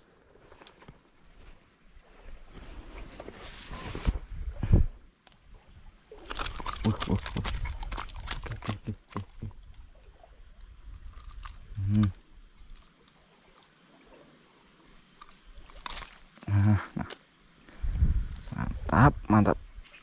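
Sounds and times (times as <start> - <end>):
short low grunt: 11.8 - 12.2, 16.4 - 17.2, 18.4 - 19.6.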